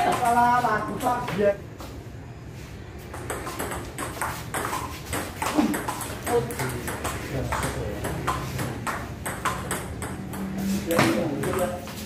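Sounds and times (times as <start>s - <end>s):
ball bouncing on table: 3.0s - 12.0s
ball clicking off paddles: 3.1s - 12.0s.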